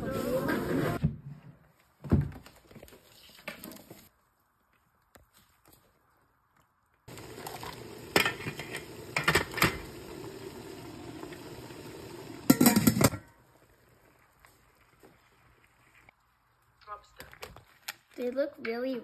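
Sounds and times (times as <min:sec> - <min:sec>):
metal pot and lid clanking: 0:07.5 - 0:10.1, 0:12.4 - 0:13.3.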